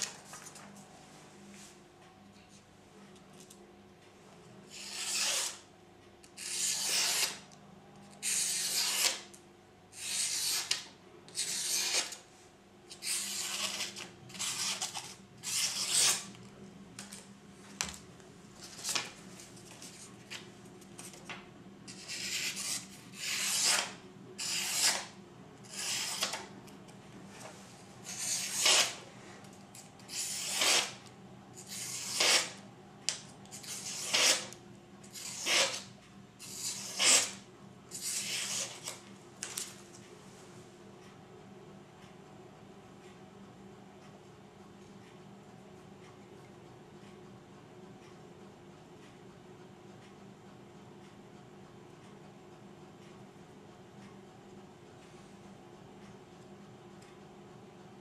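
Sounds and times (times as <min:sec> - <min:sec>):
knife slicing paper: 0:08.2 - 0:09.3, 0:10.0 - 0:12.2, 0:13.0 - 0:16.3, 0:28.0 - 0:29.0, 0:31.7 - 0:32.6.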